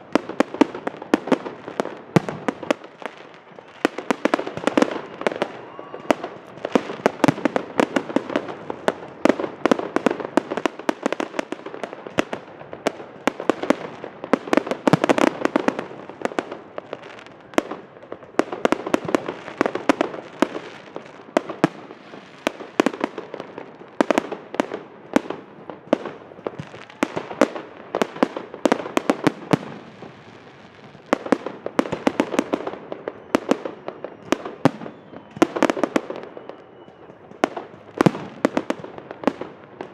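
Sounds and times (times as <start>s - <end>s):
fireworks bangs and crackling: 0.0s - 39.9s.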